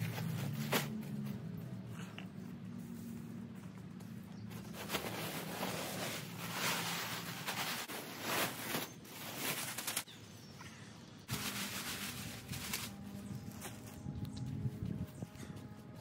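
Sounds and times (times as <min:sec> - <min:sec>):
plastic bag crinkling: 0:11.3 - 0:13.6
wood mulch spilling and rustling: 0:11.3 - 0:13.8.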